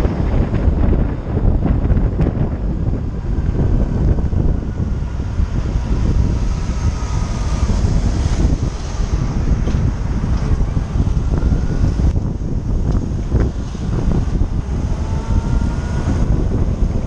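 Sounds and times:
motorcycle engine rumble: 0:00.0 - 0:17.0
wind buffeting microphone: 0:00.0 - 0:17.0.

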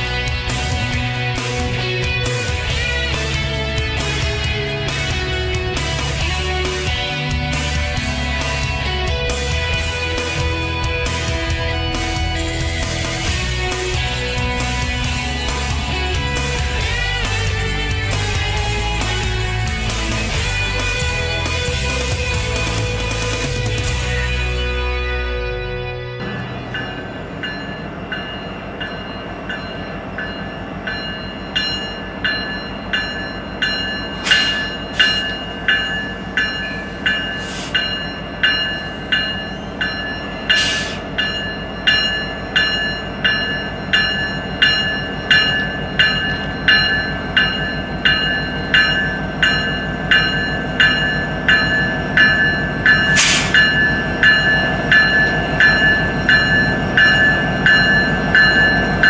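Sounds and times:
crossing warning bell ringing: 0:00.0 - 0:59.0
diesel train rumble: 0:00.0 - 0:59.0.

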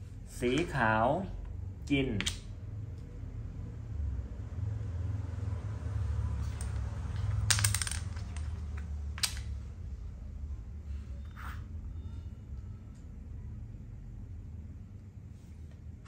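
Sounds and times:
low steady hum: 0:00.0 - 0:16.0
chess pieces clicking on board: 0:06.4 - 0:09.5.

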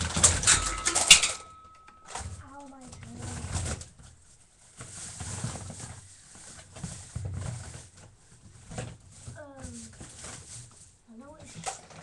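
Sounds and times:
rummaging rustling and knocking: 0:00.0 - 0:12.0.

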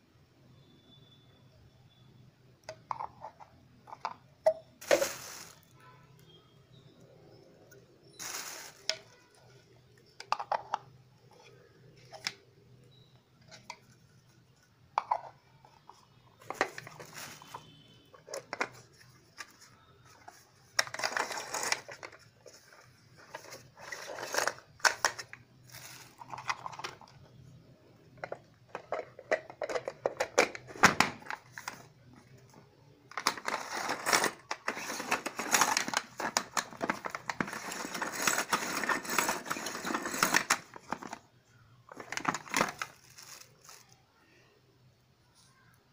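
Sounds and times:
plastic parts clicking and clattering: 0:08.2 - 0:12.4, 0:15.0 - 0:27.4, 0:28.1 - 0:43.9.

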